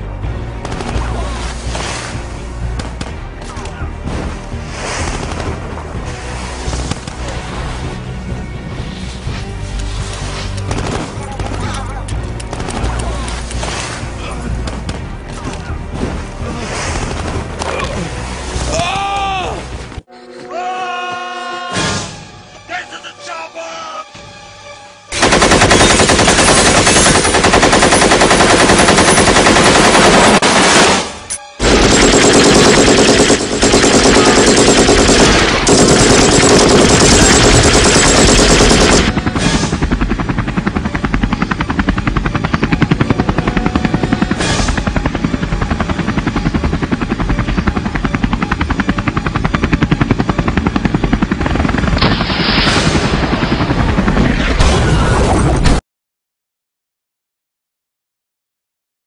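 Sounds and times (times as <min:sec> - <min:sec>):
machine-gun fire: 0:25.2 - 0:40.0.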